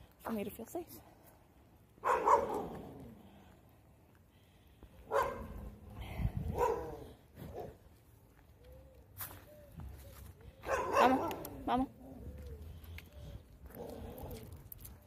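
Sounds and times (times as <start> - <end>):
dog barking: 2.0 - 2.8, 5.1 - 5.7, 6.5 - 7.8, 10.6 - 11.4
wind rumble on microphone: 5.4 - 7.7.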